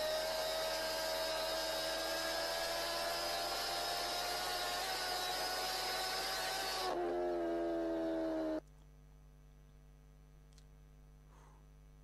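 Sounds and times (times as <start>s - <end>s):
vehicle engine whine: 0.0s - 8.6s.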